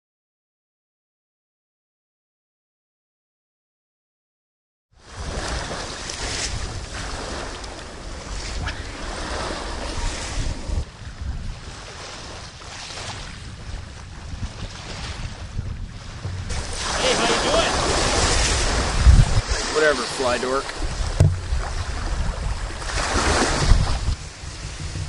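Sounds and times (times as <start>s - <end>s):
waves washing on shore: 5.0s - 25.0s
wind buffeting microphone: 5.0s - 25.0s.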